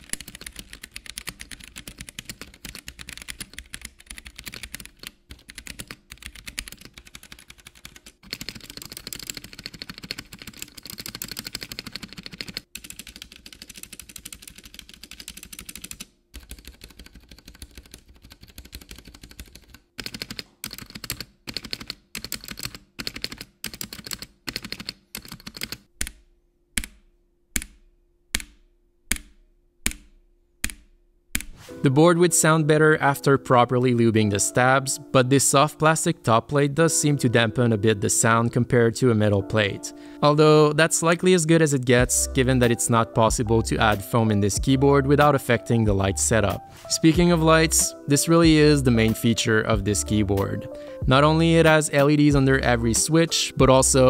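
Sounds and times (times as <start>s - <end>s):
mechanical keyboard typing: 0.0s - 26.2s.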